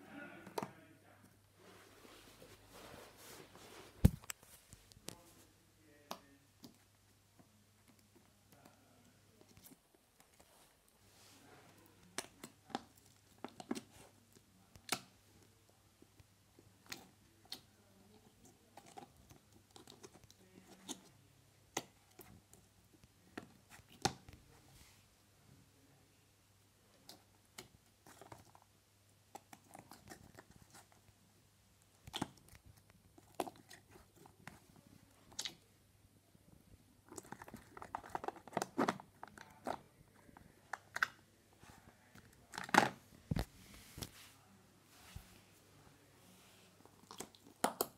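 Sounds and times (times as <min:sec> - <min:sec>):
crackly handling: 0:37.0 - 0:44.2.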